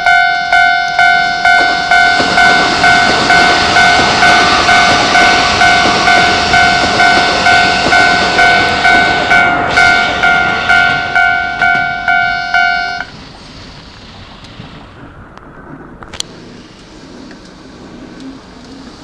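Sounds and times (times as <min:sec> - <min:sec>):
level-crossing alarm ringing: 0:00.0 - 0:13.1
electric train passing: 0:00.0 - 0:19.0.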